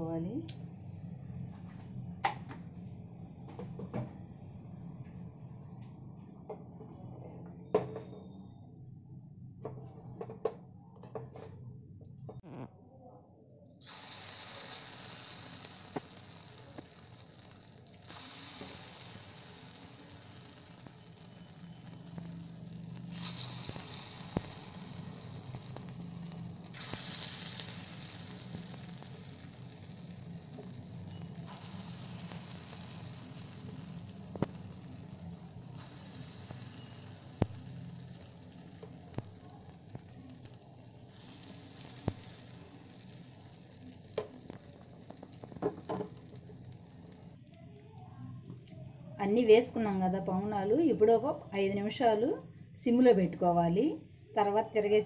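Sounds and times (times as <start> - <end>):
batter sizzling in hot oil: 13.8 - 47.6.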